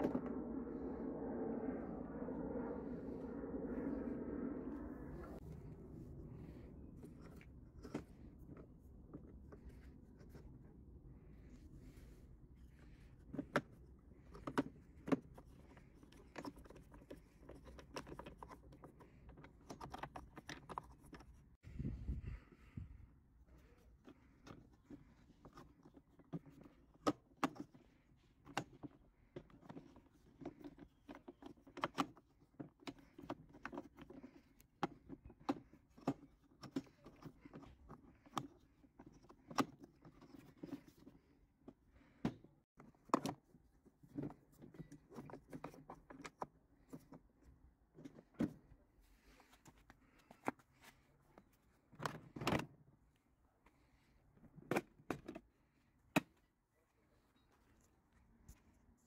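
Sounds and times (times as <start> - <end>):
plastic and metal parts clicking: 13.3 - 21.4.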